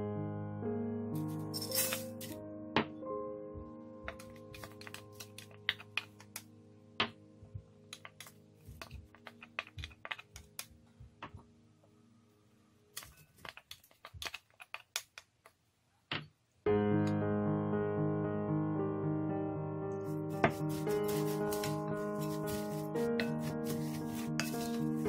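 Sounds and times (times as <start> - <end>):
background music: 0.0 - 13.0, 16.7 - 25.0
vegetables scraped into glass bowl: 20.5 - 25.0.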